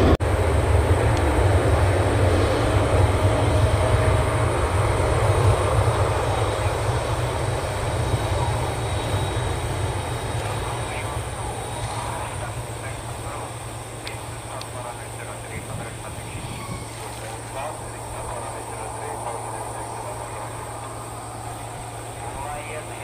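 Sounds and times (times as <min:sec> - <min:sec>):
jet engines rumbling with whine: 0:00.0 - 0:23.0.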